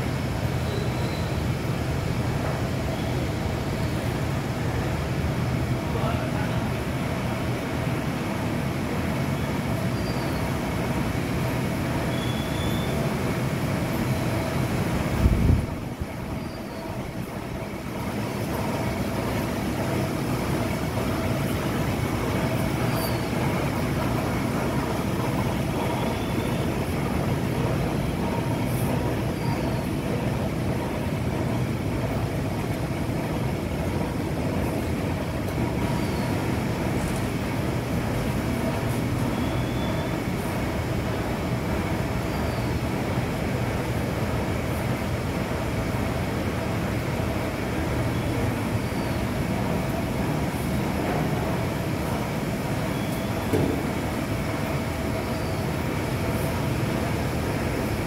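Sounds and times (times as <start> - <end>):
printing press running: 0.0 - 58.0
faint high squeaks: 0.6 - 1.4.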